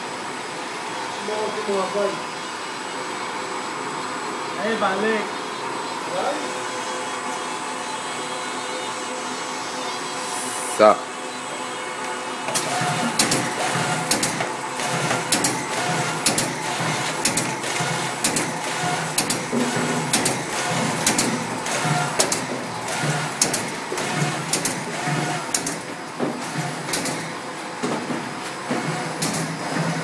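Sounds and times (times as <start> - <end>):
machine humming: 4.6 - 30.0
sharp machine clacks: 12.5 - 25.8.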